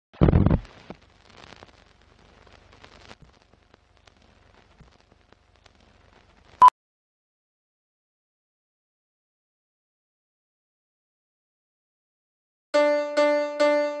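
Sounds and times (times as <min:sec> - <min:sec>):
film crackle and clicks: 0:00.4 - 0:06.6.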